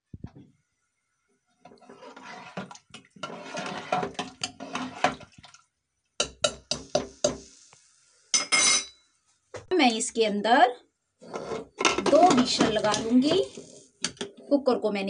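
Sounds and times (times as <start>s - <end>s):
spoon stirring and sloshing liquid: 1.6s - 7.5s
spoon scraping pot: 1.7s - 5.4s, 6.2s - 7.6s, 11.2s - 14.4s
spoon knocking on cooker: 6.2s - 7.4s.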